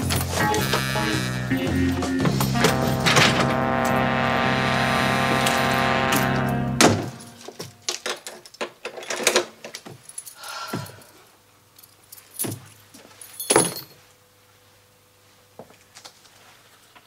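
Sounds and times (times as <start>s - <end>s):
keys jangling: 8.4s - 14.0s.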